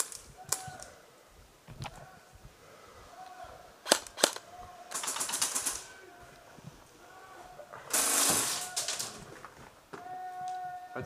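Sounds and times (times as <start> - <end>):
airsoft gun shots: 7.9 - 9.2.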